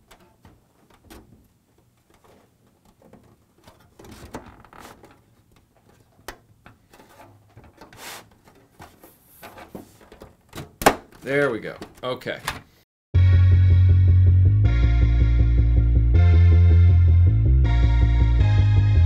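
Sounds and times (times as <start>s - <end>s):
hard plastic rubbing and scraping: 0.0s - 12.0s
plastic knocks and clicks: 9.7s - 12.7s.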